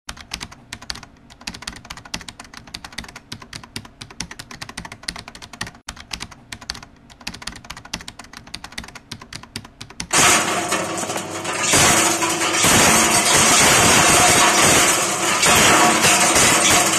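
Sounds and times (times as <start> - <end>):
rapid clicks: 0.1 - 16.9
shelling machine running: 10.1 - 16.9.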